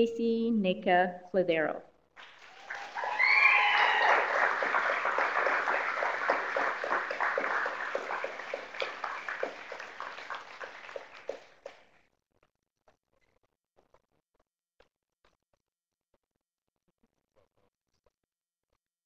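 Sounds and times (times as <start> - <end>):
audience applauding: 2.2 - 11.9.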